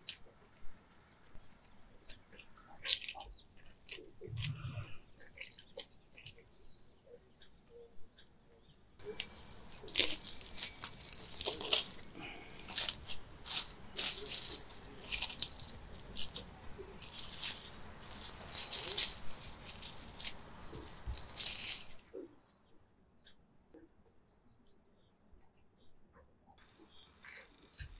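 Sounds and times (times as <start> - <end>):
cling wrap crinkling: 9.0 - 22.1.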